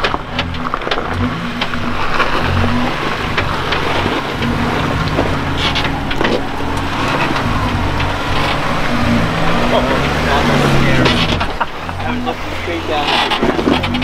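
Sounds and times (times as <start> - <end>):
engine droning at low revs: 0.0 - 14.0
tyres crunching on rock: 0.0 - 14.0.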